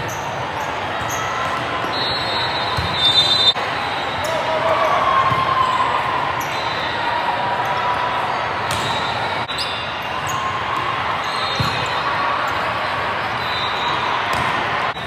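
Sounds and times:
echoing hall din with voices: 0.0s - 15.0s
volleyball hits: 2.7s - 3.6s, 8.6s - 9.2s, 11.5s - 12.0s, 14.3s - 14.8s.

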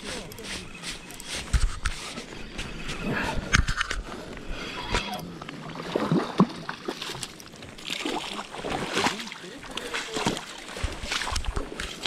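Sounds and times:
scattered clicks: 0.0s - 2.0s
river water sloshing and splashing: 5.0s - 12.0s.

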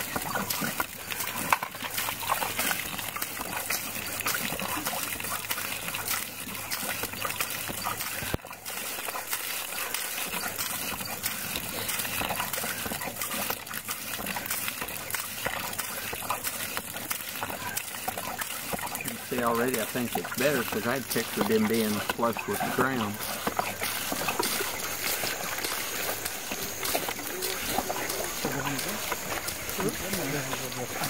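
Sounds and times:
water gushing from pump spout: 0.0s - 31.0s
pump handle clicks and knocks: 0.1s - 3.3s.

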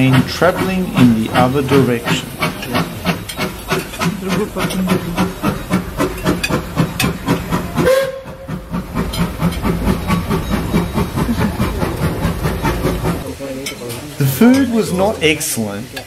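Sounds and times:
steam locomotive chuffing: 0.0s - 16.0s
steam whistle: 7.8s - 8.6s.

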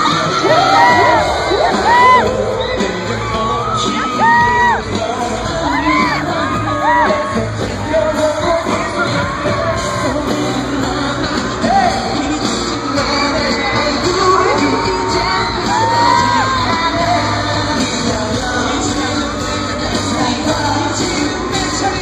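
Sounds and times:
fans shouting and whooping: 0.0s - 22.0s
male vocal group singing pop: 0.0s - 22.0s.

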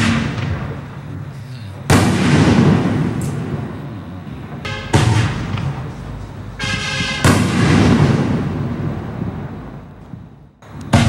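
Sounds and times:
firework shell rushing hiss: 0.0s - 4.0s
firework boom echoing: 0.0s - 11.0s.

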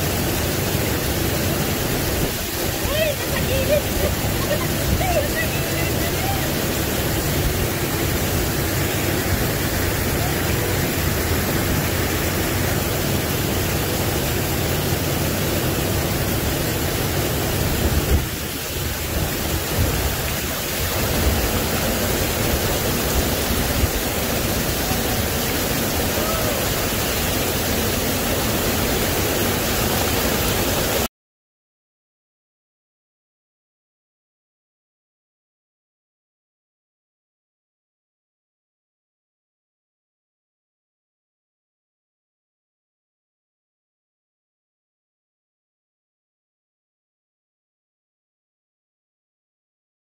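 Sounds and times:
waterfall rushing over rocks: 0.0s - 31.1s.

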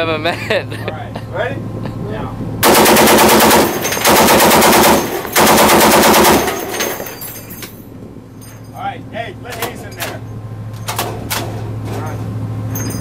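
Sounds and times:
heavy machine gun automatic fire: 2.6s - 7.0s.

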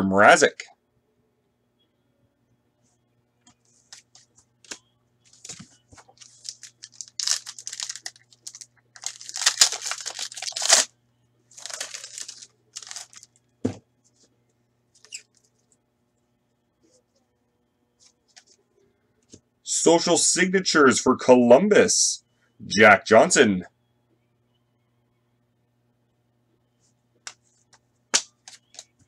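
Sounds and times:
wrapper tearing and crinkling: 6.2s - 10.9s, 11.6s - 13.3s.

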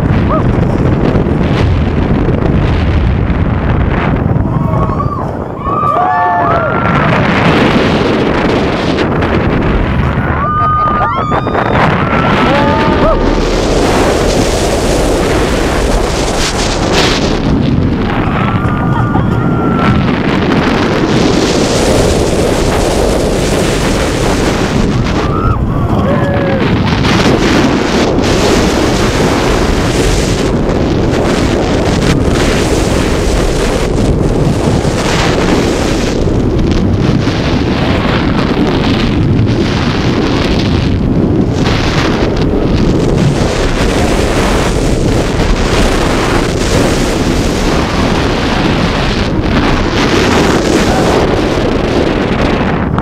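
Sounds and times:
roller coaster train rumbling: 0.0s - 53.0s
wind buffeting microphone: 0.0s - 53.0s.

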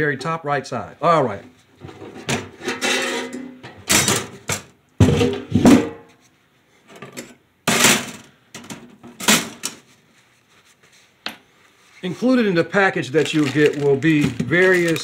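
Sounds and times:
sheet metal parts clanking: 1.8s - 6.0s.

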